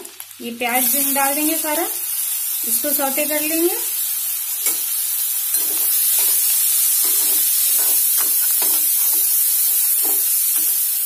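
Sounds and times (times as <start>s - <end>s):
onions sizzling in oil: 0.0s - 11.0s
metal spatula scraping a pan: 5.5s - 10.8s.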